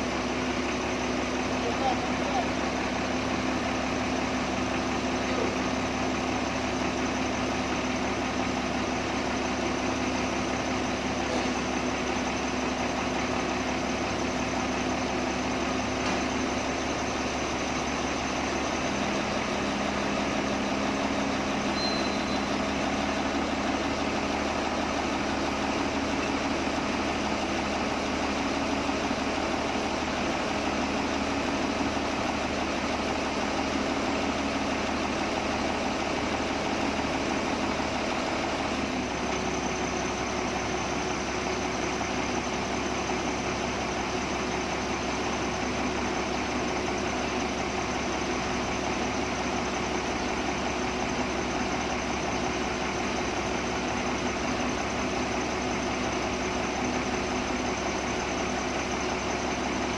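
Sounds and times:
diesel engine idling: 0.0s - 59.9s.

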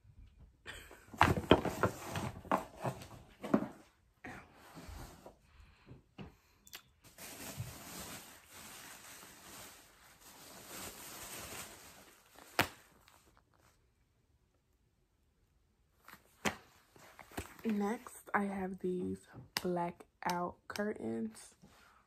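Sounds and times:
packaging rustling: 7.0s - 13.7s.

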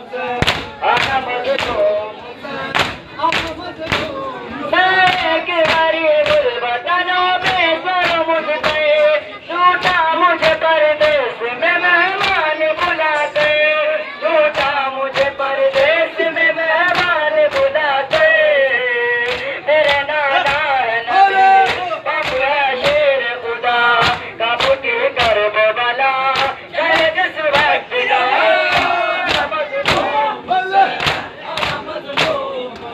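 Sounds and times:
men singing a lament: 0.0s - 32.9s
hands slapping chests: 0.4s - 1.8s, 2.7s - 4.1s, 5.0s - 6.4s, 7.4s - 8.8s, 12.2s - 13.6s, 16.9s - 18.4s, 19.2s - 20.7s, 21.6s - 23.0s, 24.0s - 25.4s, 26.3s - 27.8s, 28.7s - 30.1s, 31.0s - 32.9s.

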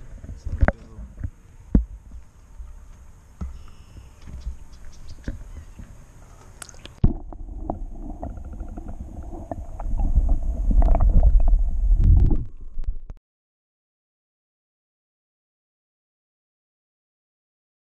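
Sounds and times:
shoreline ambience: 0.0s - 13.2s
muffled underwater rumbling: 6.7s - 13.2s.

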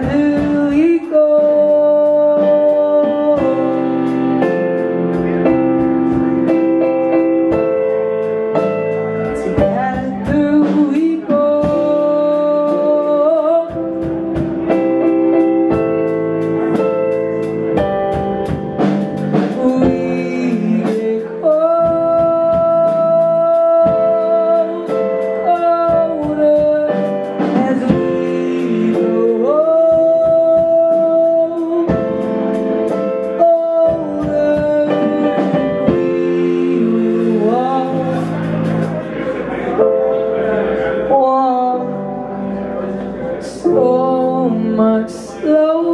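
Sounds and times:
drum kit: 0.0s - 40.4s
electric bass: 0.0s - 45.9s
electric keyboard: 0.0s - 45.9s
man singing: 19.4s - 32.1s, 33.3s - 38.8s, 43.2s - 45.9s.

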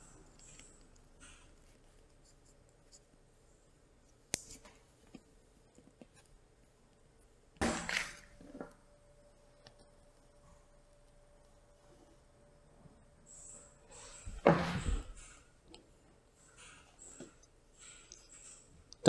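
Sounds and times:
handling wire and tubing: 0.0s - 3.3s.

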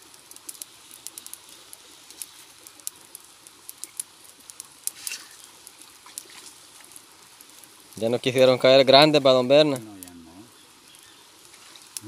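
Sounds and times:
campfire crackling: 0.0s - 12.0s
sharp pops of fire: 0.0s - 12.0s.

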